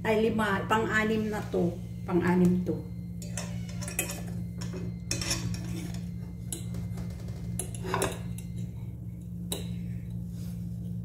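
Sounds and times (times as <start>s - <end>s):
steady low hum: 0.0s - 11.0s
metal fork scraping a pan: 5.1s - 6.2s.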